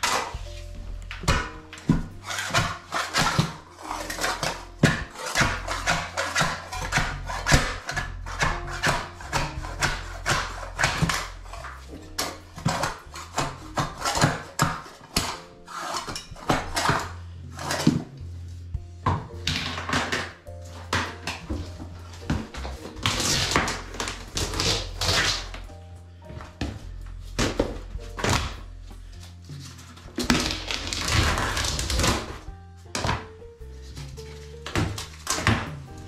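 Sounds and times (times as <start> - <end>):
floor scraper scraping concrete: 0.0 - 25.6, 26.3 - 36.0.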